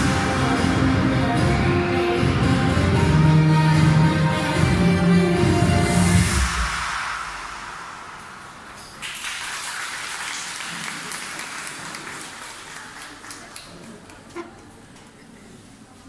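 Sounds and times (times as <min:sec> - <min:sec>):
backing music: 0:00.0 - 0:06.8
audience applauding: 0:09.0 - 0:14.7.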